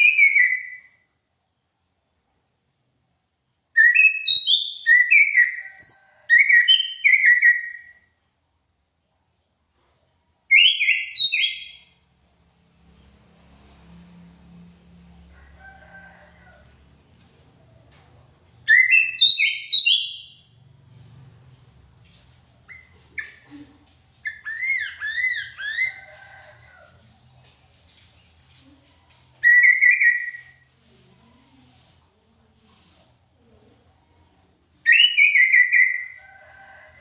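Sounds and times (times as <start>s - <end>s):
bird singing whistled phrases: 34.9s - 36.0s.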